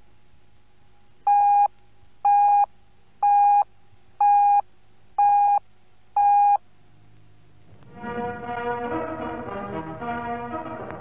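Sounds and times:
faint steady hum: 0.0 - 11.0
short time signal beeps: 2.3 - 3.6, 4.2 - 4.6, 5.2 - 5.6, 6.2 - 6.6.

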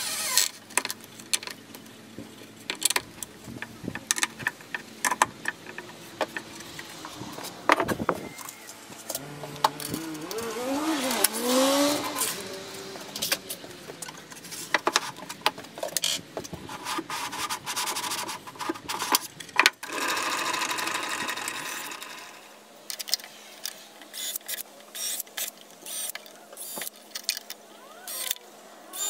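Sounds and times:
cordless drill driving screws: 25.9 - 26.9.

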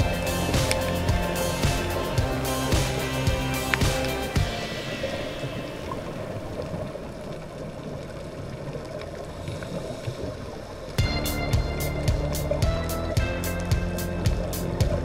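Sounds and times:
background music: 0.0 - 6.9, 11.0 - 15.0
underwater rumble: 0.0 - 15.0
faint ticks: 7.8 - 11.0.

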